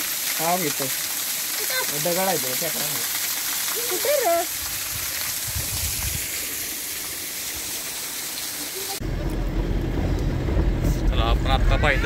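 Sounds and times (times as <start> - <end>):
waterfall splashing: 0.0 - 9.0
vehicle engine rumble: 9.0 - 12.0.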